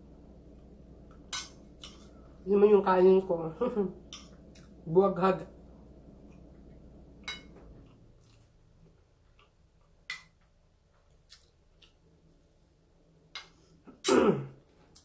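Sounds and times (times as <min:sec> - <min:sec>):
cutlery clinking on a plate: 0:07.2 - 0:07.6.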